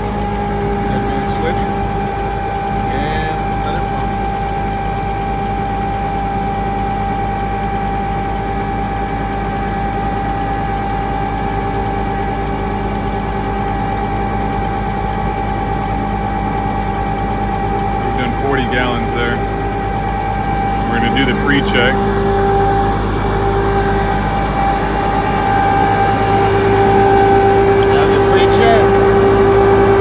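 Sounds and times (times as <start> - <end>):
truck engine running: 0.0 - 30.0
steady high-pitched tone: 10.7 - 30.0.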